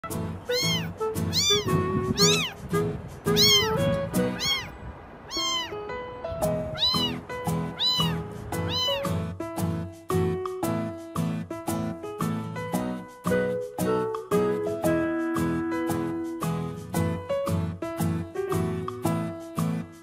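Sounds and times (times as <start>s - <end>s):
kitten meowing: 0.5s - 5.8s, 6.5s - 9.2s.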